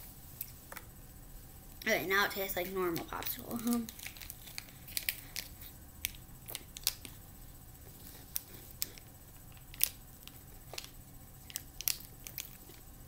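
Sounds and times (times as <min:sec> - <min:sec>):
plastic sleeve crinkling: 0:03.2 - 0:07.1.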